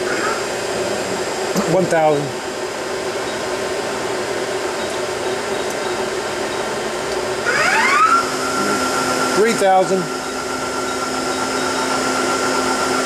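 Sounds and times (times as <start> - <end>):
lathe machine hum: 0.0 - 13.0
motor whine rising in pitch: 7.4 - 13.0.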